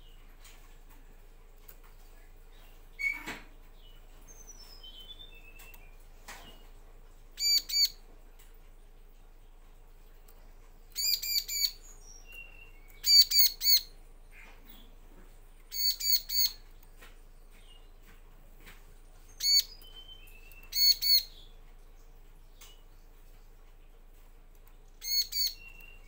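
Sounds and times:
bird chirping: 2.1 - 6.8, 7.4 - 8.0, 10.2 - 15.0, 15.6 - 18.2, 19.2 - 23.9, 24.9 - 26.0.

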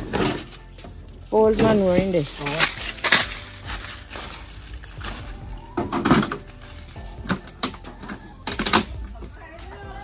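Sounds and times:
plastic crate knocking on leaves: 1.4 - 6.4
footsteps on dry leaves: 1.5 - 5.8, 6.4 - 7.2.

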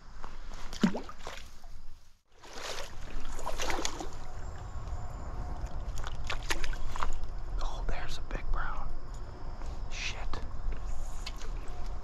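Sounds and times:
stream water splashing: 0.6 - 4.3, 5.6 - 7.3
low rumble: 3.2 - 12.0.

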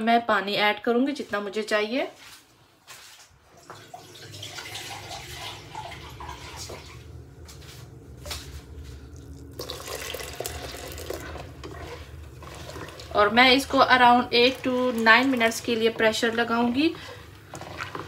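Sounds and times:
water pouring into a pot: 3.6 - 7.0, 9.2 - 16.3.

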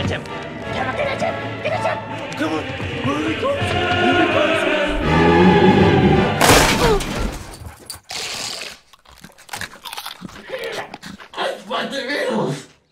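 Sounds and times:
music: 0.0 - 6.4
loud shattering crash: 6.4 - 7.7.

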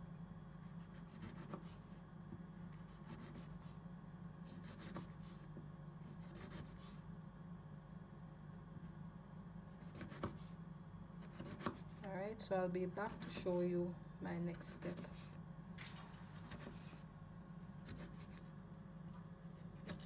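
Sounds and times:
steady low hum: 0.0 - 20.0
knife cutting on cutting board: 0.9 - 1.8, 2.7 - 3.7, 4.5 - 7.0, 9.8 - 10.5, 11.2 - 12.0, 15.8 - 17.0, 17.8 - 18.5, 19.6 - 20.0.

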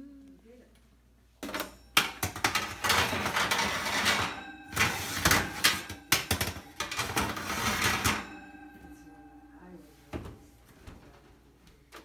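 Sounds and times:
sharp metal clanks: 1.4 - 10.5
oven rack scraping and rattling: 2.0 - 8.6.

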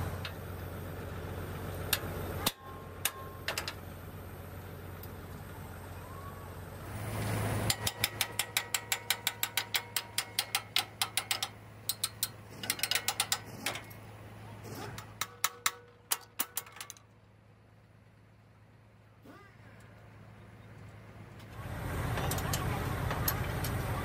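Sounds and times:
rapid metal-on-metal taps: 7.7 - 14.0, 14.9 - 17.0.

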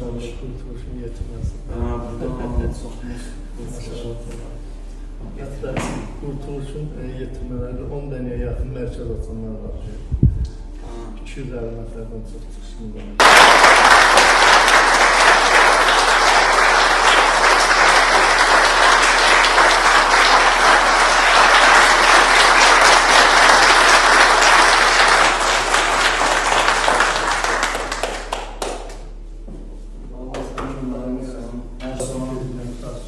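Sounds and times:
crowd applauding: 13.2 - 29.1.

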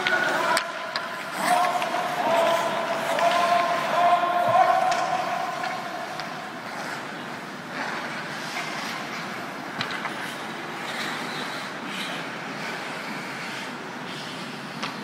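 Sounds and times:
skates scraping on ice: 0.0 - 15.0.

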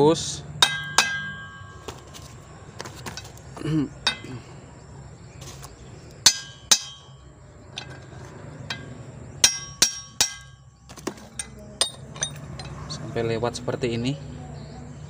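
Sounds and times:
hammer striking metal: 0.6 - 2.1, 4.0 - 4.4, 6.2 - 7.2, 7.8 - 13.0
light metal clinks: 3.0 - 4.6, 6.1 - 13.2.

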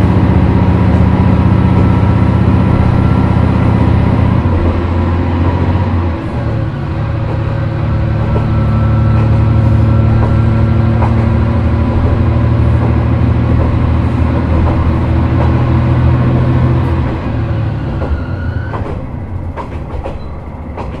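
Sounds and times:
rising whine: 0.0 - 13.9
diesel railcar engine drone: 0.0 - 21.0.

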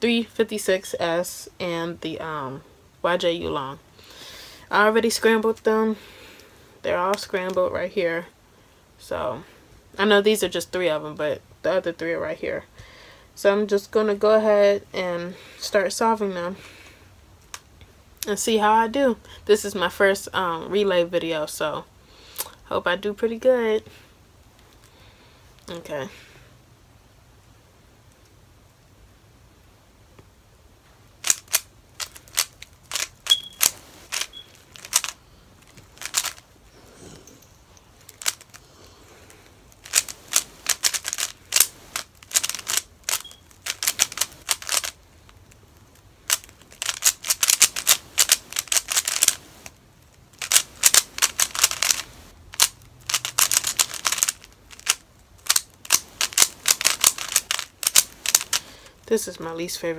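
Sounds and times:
puzzle cube clicking: 31.2 - 36.4, 38.1 - 38.6, 39.8 - 45.0, 45.9 - 58.6.

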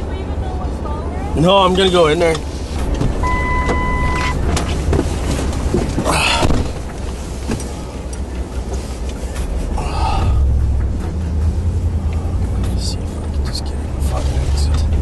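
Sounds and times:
vehicle engine idling: 0.0 - 15.0
electronic beep: 3.2 - 4.4.

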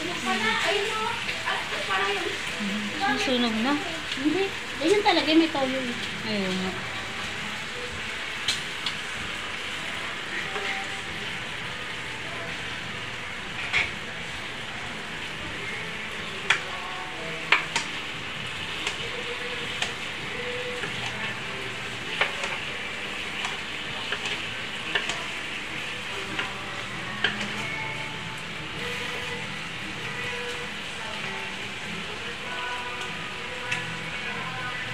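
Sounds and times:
pork sizzling on a grill pan: 0.0 - 34.9
tongs clicking and scraping on pan: 16.4 - 34.9.

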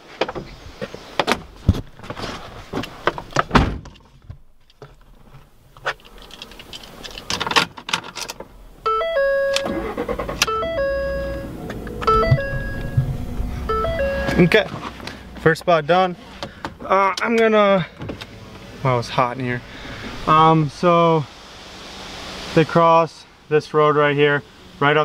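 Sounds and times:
steady low hum: 8.6 - 16.8
short repeating stepped-note melody: 10.5 - 14.6.

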